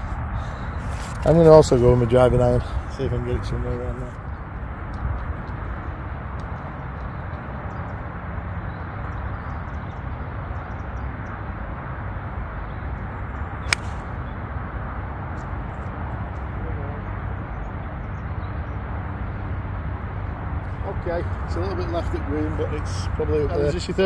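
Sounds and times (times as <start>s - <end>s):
wind noise: 0.0s - 16.3s
golf club striking ball: 13.6s - 14.2s.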